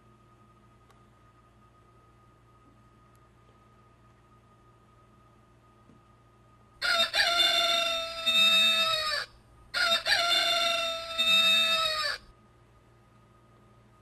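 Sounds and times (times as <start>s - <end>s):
rooster crowing: 6.8s - 12.3s.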